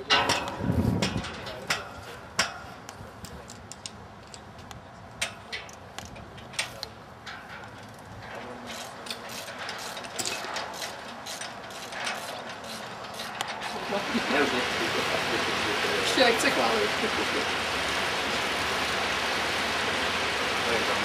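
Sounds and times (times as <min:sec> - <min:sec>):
metallic clicks and knocks: 0:00.0 - 0:13.6.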